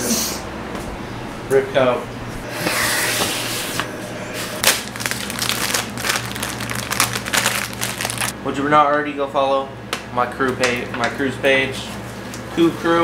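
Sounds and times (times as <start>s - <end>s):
plastic crinkling and rustling: 4.6s - 8.3s.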